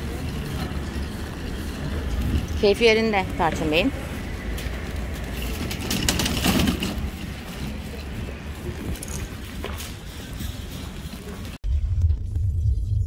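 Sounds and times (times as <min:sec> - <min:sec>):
trolley wheels rumbling: 0:00.0 - 0:12.2
wire basket rattling and clinking: 0:05.0 - 0:11.4.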